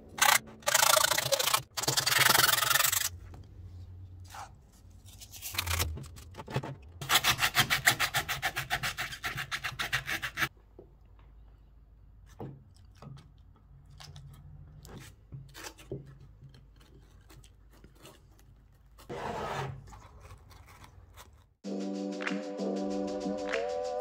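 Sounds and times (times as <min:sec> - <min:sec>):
foam being scraped: 0:16.9 - 0:21.4.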